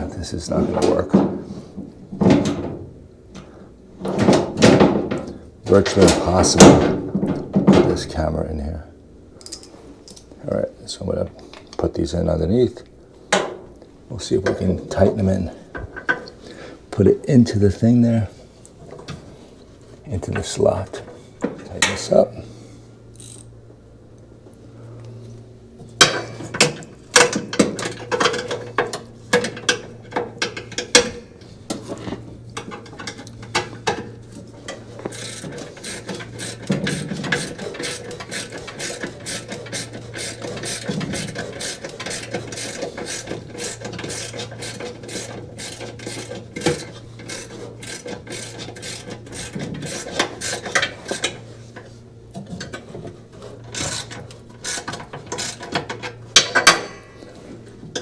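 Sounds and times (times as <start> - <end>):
low steady hum: 0.0 - 58.0
ratchet wrench clicking: 23.1 - 23.5, 35.1 - 51.2, 53.8 - 55.7.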